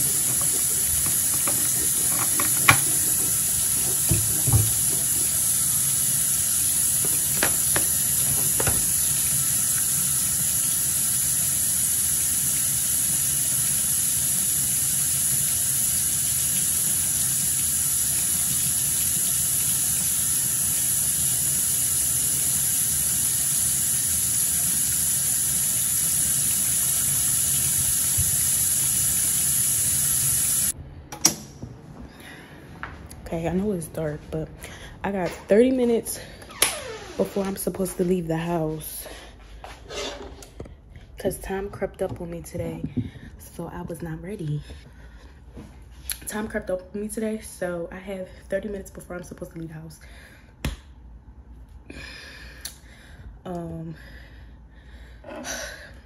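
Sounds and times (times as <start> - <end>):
sink tap running: 0.0 - 30.8.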